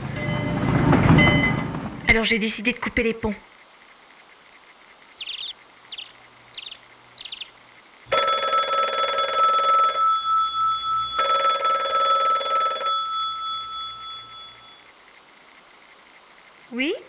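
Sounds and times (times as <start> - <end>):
corded telephone ringing: 0.1 - 1.7, 8.1 - 15.0.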